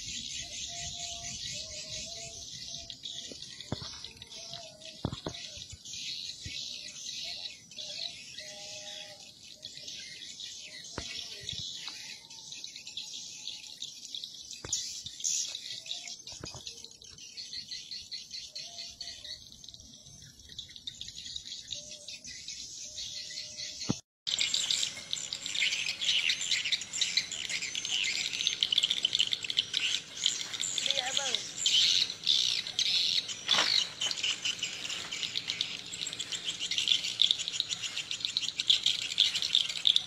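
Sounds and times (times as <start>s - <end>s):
swiftlets chirping and twittering: 23.3s - 40.0s.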